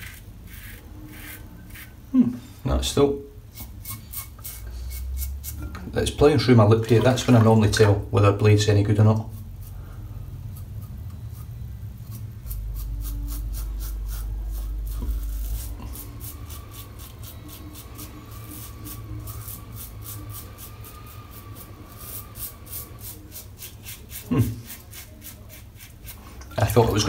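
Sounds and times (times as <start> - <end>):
razor scraping stubble: 0.0 - 2.0, 10.5 - 27.0.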